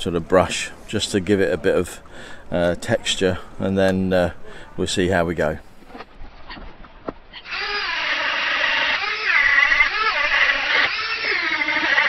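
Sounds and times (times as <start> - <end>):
rotary tool wire brush whining: 7.4 - 12.0.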